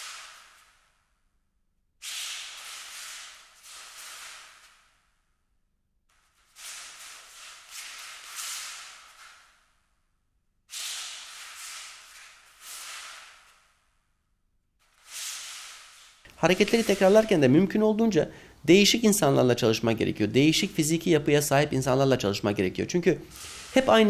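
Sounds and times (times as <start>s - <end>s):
hissing swishing noise: 14.9s - 17.5s.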